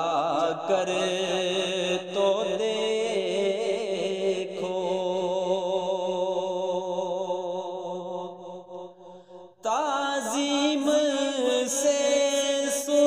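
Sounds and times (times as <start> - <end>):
solo voice singing: 9.7 - 13.0.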